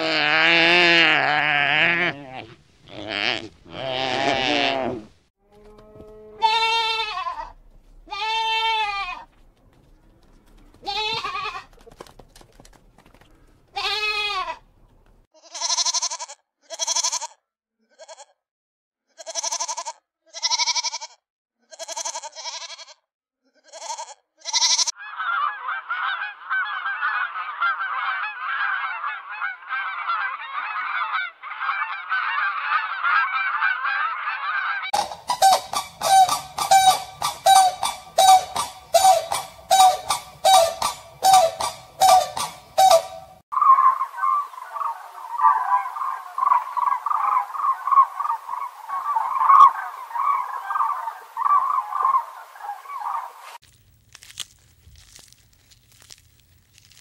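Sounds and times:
farm animals calling: 0.0 - 11.9, 23.6 - 53.6.

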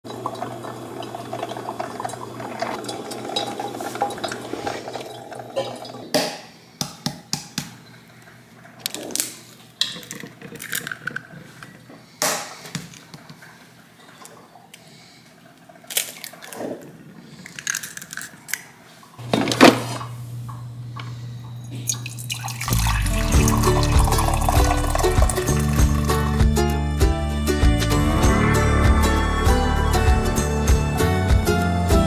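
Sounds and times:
coffee maker gurgling and hissing: 0.0 - 6.2, 21.6 - 26.4.

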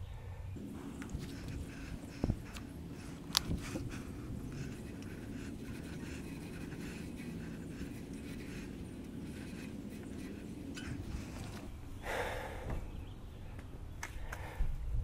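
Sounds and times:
cloth wiping brake rotor: 0.6 - 11.8
loud rustle: 0.6 - 11.8
person panting: 12.0 - 12.8.

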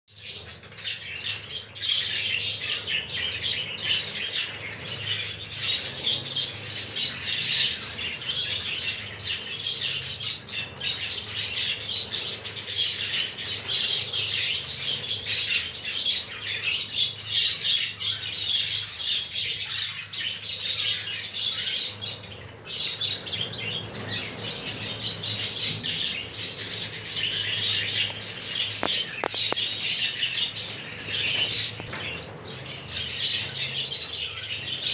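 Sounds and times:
budgerigars chattering and chirping: 0.2 - 34.9
wings fluttering: 22.2 - 34.7.

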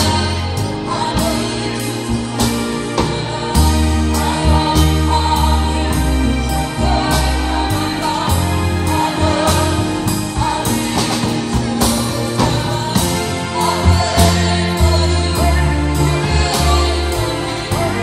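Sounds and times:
bass notes: 0.0 - 18.0
choir singing gospel: 0.0 - 18.0.

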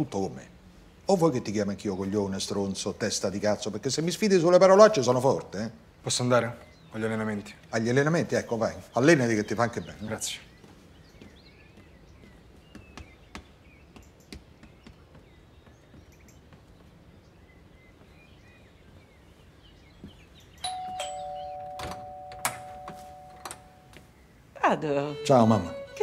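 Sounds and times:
two-tone doorbell chime: 20.6 - 24.0.

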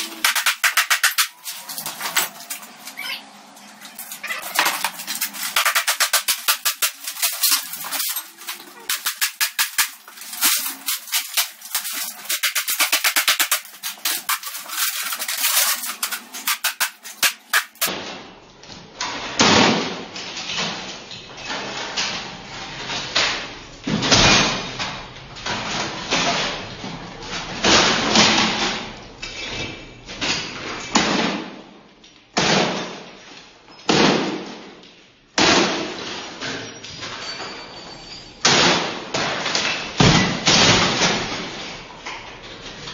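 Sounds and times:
glass and crockery smashing: 0.0 - 17.9, 35.5 - 41.7
debris falling: 0.0 - 18.3, 38.4 - 42.9
rapid clattering: 3.6 - 17.9.

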